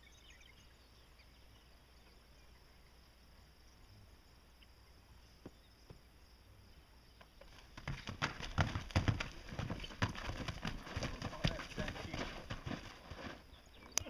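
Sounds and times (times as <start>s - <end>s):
hooves clattering: 7.2s - 14.0s.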